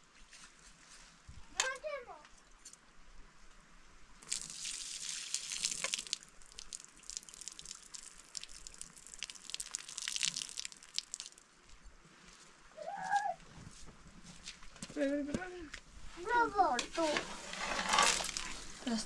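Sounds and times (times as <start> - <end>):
liquid pouring onto earth: 4.2 - 11.4, 17.7 - 18.8.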